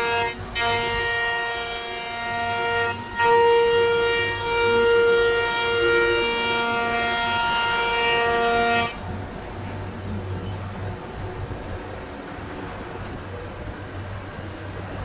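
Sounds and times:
router spindle whining through wood: 0.0s - 9.8s.

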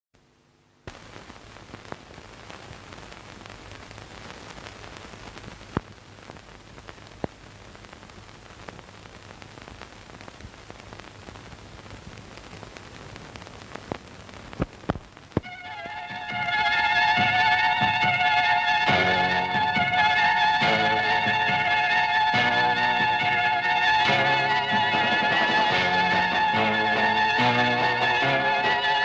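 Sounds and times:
film soundtrack hiss and hum: 0.2s - 29.0s
clicks and pops: 0.9s - 15.5s.

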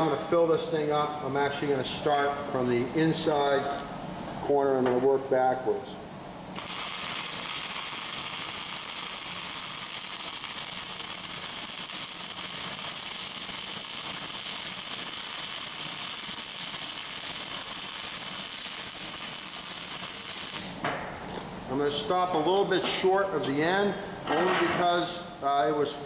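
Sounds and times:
welding arc hissing crackle: 6.5s - 20.8s.

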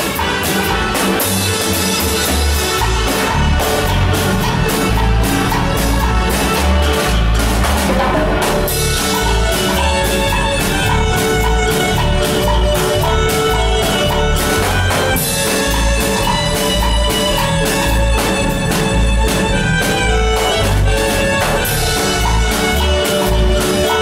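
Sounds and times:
bass line: 0.0s - 24.0s
drum kit: 0.0s - 24.0s
marimba dance music: 0.0s - 24.0s.

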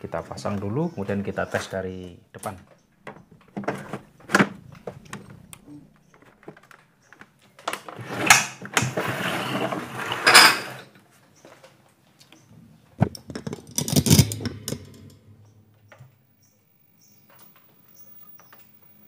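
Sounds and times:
clicks and knocks of handling: 2.4s - 8.9s, 11.4s - 16.2s
rough scraping and rustling: 7.9s - 10.9s.

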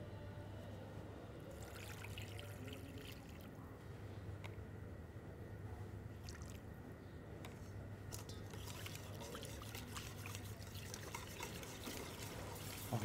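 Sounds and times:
low steady hum: 0.0s - 13.0s
whisk scraping metal bowl: 8.6s - 13.0s.

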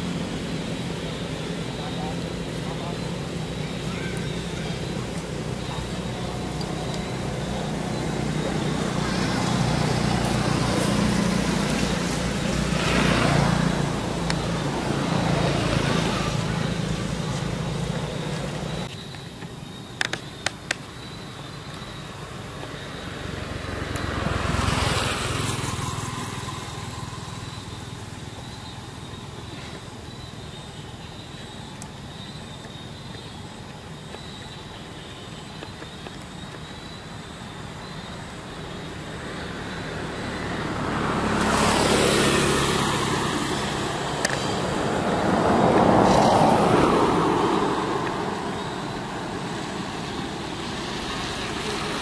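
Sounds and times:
low engine hum: 0.0s - 18.9s
vehicles passing by: 0.0s - 52.0s.

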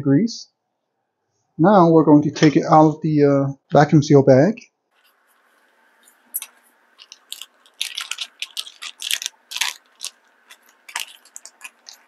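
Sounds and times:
plastic bag crinkling: 5.0s - 12.0s.

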